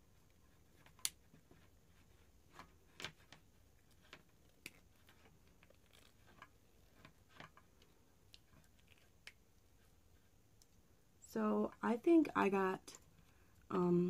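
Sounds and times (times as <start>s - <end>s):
faint clicks of objects handled: 0.1s - 10.9s.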